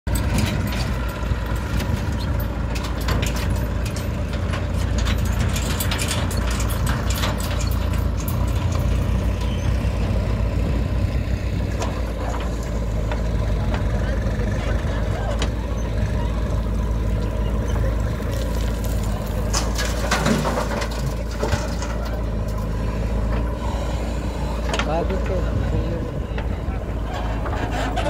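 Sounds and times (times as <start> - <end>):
backhoe diesel engine running: 0.0 - 28.0
tractor engines idling: 0.0 - 28.0
metal clanks and knocks: 0.1 - 10.3, 11.6 - 14.0, 19.3 - 23.6, 26.3 - 28.0.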